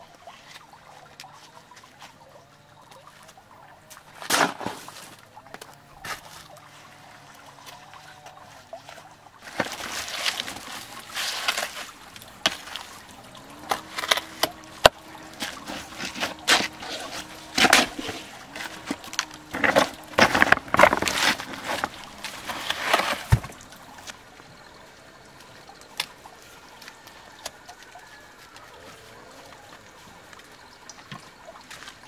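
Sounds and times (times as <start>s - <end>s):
shovel scraping wet mortar: 4.2s - 5.2s, 9.5s - 23.6s.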